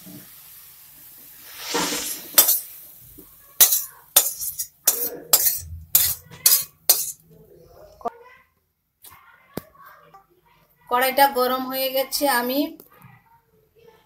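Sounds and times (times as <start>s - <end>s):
utensil scraping metal pan: 1.4s - 2.7s, 3.6s - 7.2s.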